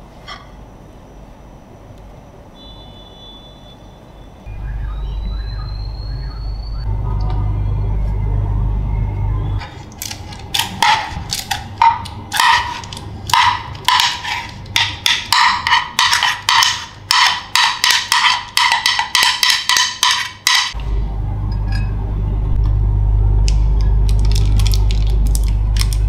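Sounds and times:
metal spoon scraping metal bowl: 12.3s - 20.8s.

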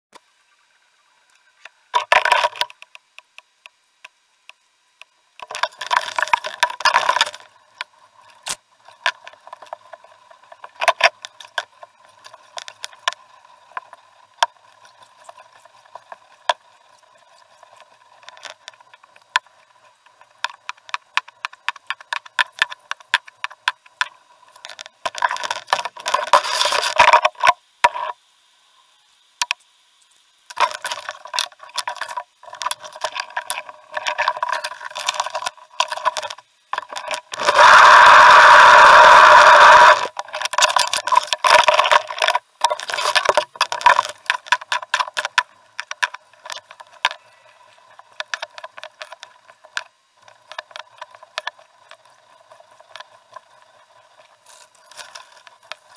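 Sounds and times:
faint steady tone: 0.2s - 55.9s
canoe gear knocking and rattling: 1.9s - 2.9s, 17.6s - 28.2s, 30.5s - 55.9s.

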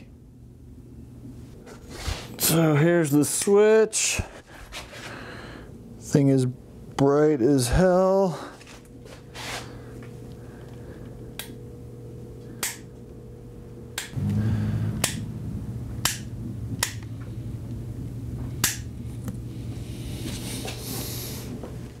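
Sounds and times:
low hum: 9.7s - 22.0s.

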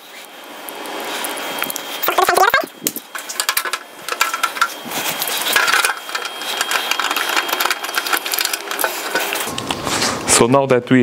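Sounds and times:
driver and bolts rattling on plastic: 3.1s - 9.5s.

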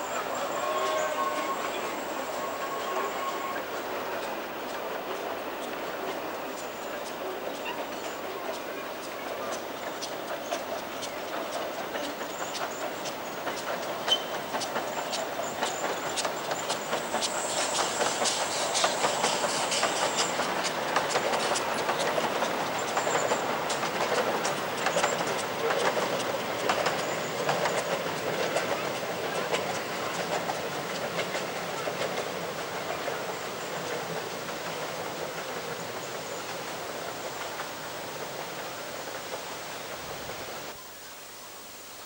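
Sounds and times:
wheel clicks over rail joints: 11.5s - 39.5s.

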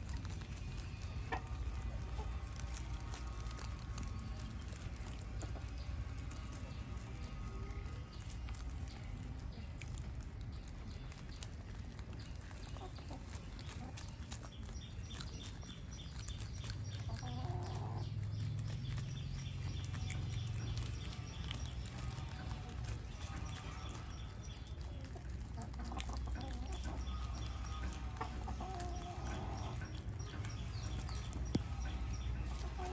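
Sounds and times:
chicken clucking: 0.0s - 32.9s
low steady hum: 0.0s - 32.9s
rabbits chewing leaves: 0.0s - 32.9s.

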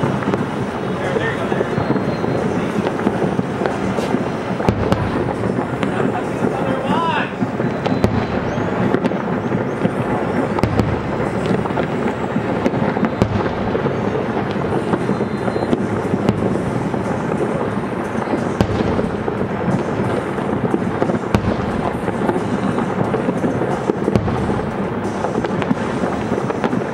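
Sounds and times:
firework shells bursting: 0.0s - 26.9s
sharp firework cracks: 0.0s - 26.9s.

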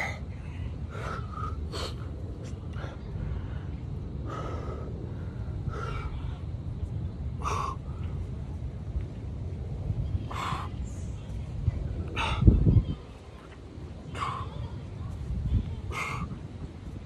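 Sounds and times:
man breathing hard: 0.0s - 6.2s, 7.4s - 8.1s, 12.2s - 12.6s.

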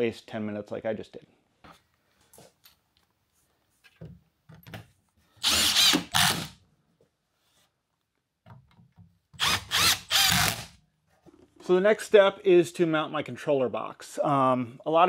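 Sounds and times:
faint clicks of parts handled: 1.6s - 5.2s.

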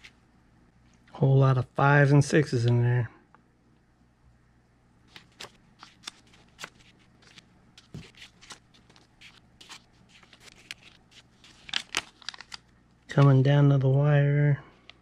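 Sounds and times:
paper bills flicking: 5.1s - 13.4s.

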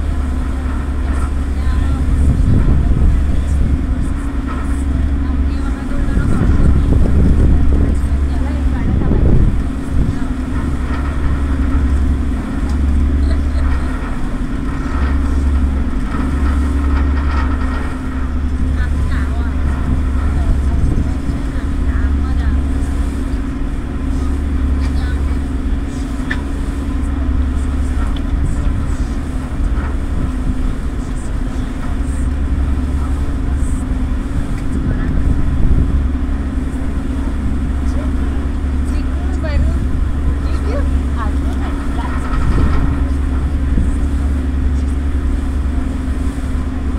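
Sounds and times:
ferry engines droning: 0.0s - 46.9s
water wash: 0.0s - 46.9s.

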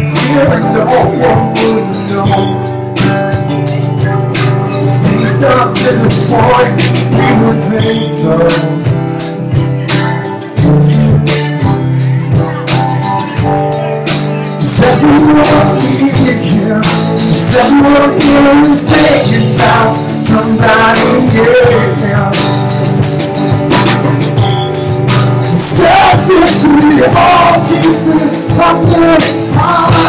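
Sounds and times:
person singing: 0.0s - 3.0s, 3.7s - 9.6s, 14.4s - 24.4s, 25.3s - 30.0s
drum kit beat: 0.0s - 30.0s
electric guitars: 0.0s - 30.0s.

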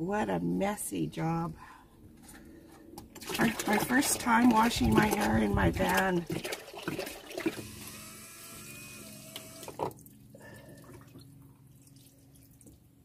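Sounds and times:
faint steady hum: 0.0s - 13.0s
hands splashing in water: 3.2s - 7.6s
water poured into a bucket: 3.2s - 8.0s, 9.8s - 12.8s.

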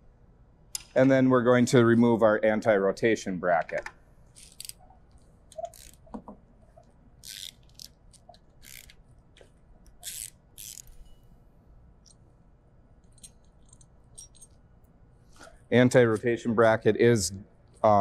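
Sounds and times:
ratcheting wrench clicking: 4.4s - 4.8s, 5.5s - 6.1s, 7.2s - 9.0s, 9.9s - 11.1s.

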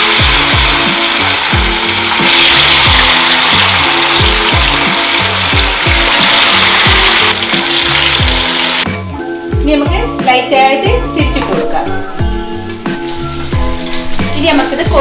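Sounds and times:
chicken deep-frying in oil: 0.0s - 8.9s
background music with low thumps: 0.0s - 15.0s.

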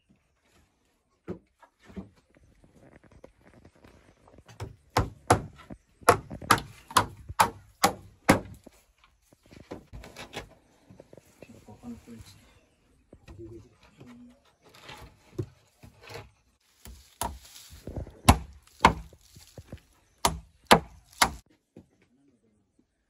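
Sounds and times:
hammering on wood: 4.5s - 8.6s, 18.3s - 19.2s, 20.2s - 21.4s.

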